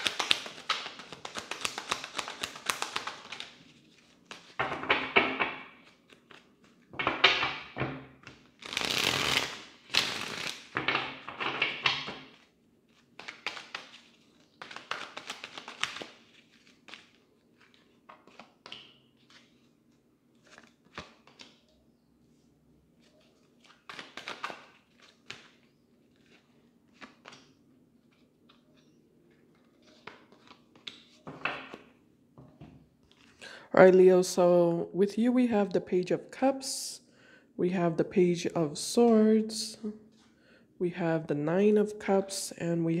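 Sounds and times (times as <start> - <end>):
cards shuffling: 0.0 - 21.7, 23.0 - 32.0.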